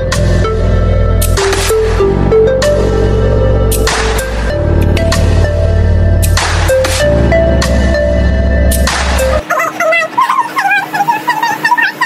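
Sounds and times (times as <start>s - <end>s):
steady bass: 0.0s - 9.4s
synth melody: 0.0s - 12.0s.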